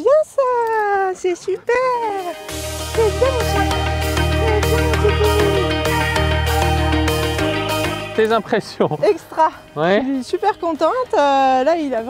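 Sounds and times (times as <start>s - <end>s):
background music with steady beat: 2.2s - 12.0s.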